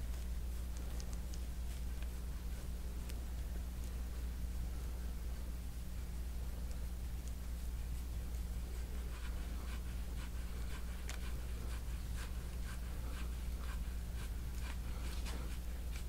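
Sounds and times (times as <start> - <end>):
tool scraping over skin: 7.2 - 16.0.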